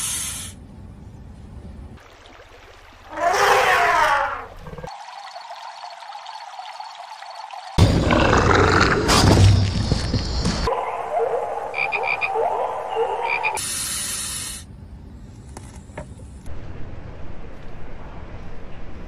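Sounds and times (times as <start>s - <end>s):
hiss: 0.0s - 0.6s, 13.6s - 14.7s
frogs croaking: 4.4s - 9.0s, 11.6s - 13.6s.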